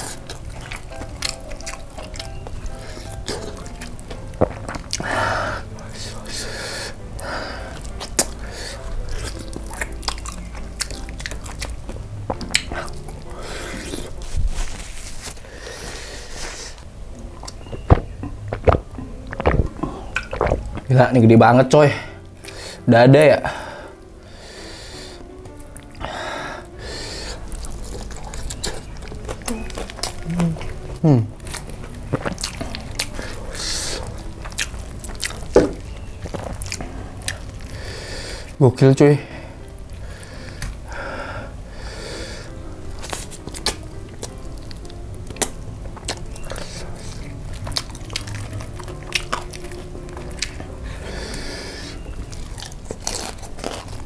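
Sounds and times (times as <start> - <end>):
biting and chewing chicken: 0.0 - 21.2, 23.5 - 38.6, 41.7 - 54.0
crunches of crispy coating: 0.0 - 54.0.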